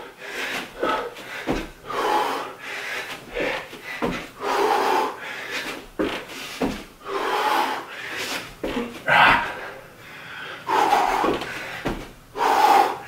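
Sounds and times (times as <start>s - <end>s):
man breathing hard: 0.0s - 13.0s
thuds on a carpeted floor: 0.8s - 1.8s, 3.4s - 4.4s, 5.6s - 6.9s, 8.6s - 9.0s, 11.1s - 12.2s.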